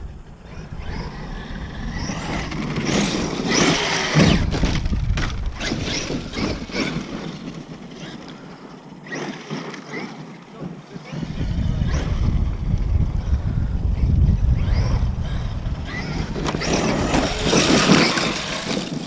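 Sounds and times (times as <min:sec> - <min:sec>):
electric motor whine: 0:00.0 - 0:19.0
tyres scrabbling over dirt: 0:02.0 - 0:12.6, 0:15.9 - 0:19.0.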